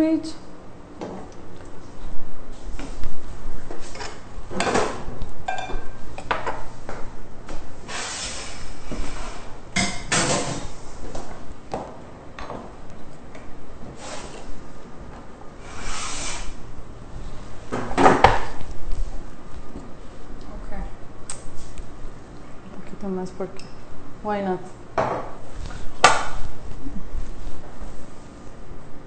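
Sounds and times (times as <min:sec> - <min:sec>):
plates and utensils clinking: 0:04.6 - 0:06.0.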